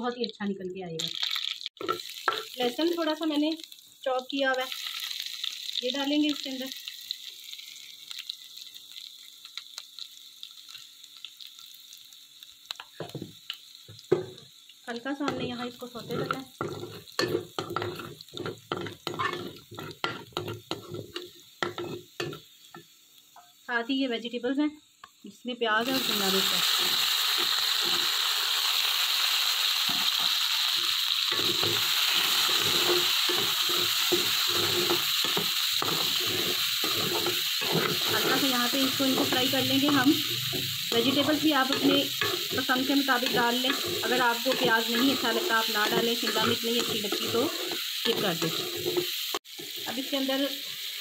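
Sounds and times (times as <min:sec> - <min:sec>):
garlic sizzling in oil: 0:00.0 - 0:51.0
small crackles and pops: 0:04.5 - 0:15.1
metal spoon stirring against pan: 0:15.2 - 0:22.9, 0:29.9 - 0:50.9.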